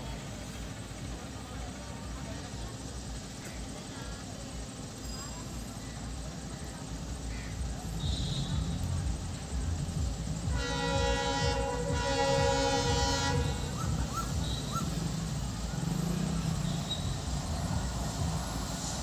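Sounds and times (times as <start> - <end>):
distant locomotive air horn: 8.0 - 9.0, 10.3 - 15.0.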